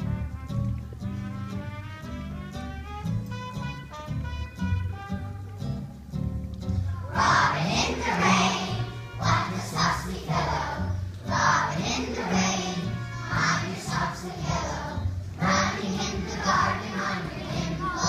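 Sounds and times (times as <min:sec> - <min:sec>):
instrumental accompaniment: 0:00.0 - 0:18.0
children singing: 0:07.1 - 0:18.0.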